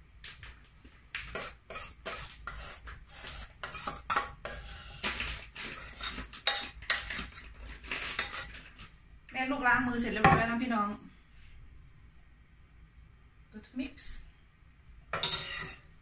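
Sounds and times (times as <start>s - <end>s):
metal spoon scraping metal bowl: 1.3s - 8.6s, 15.2s - 15.9s.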